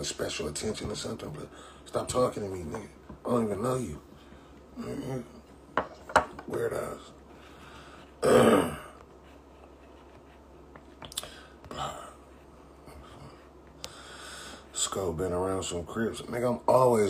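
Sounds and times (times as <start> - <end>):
man clearing throat: 8.2 - 9.0.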